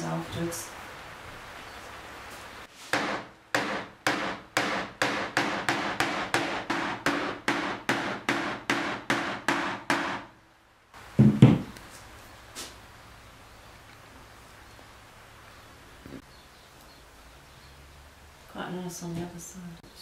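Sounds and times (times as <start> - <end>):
heavy dull mallet thumps: 11.2 - 11.7.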